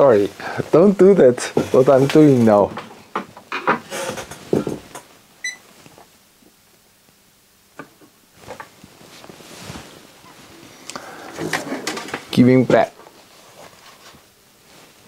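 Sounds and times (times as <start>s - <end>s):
soft handling rustle: 0.0s - 2.8s, 4.3s - 6.8s, 8.4s - 15.0s.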